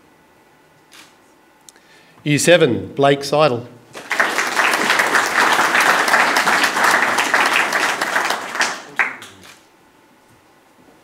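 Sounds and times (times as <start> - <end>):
audience applauding: 3.9 - 9.5.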